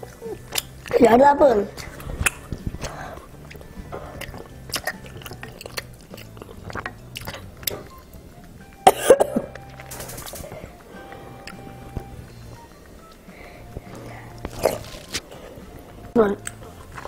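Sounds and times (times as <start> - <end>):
child chewing: 0.0 - 17.0
child coughing: 8.9 - 9.5.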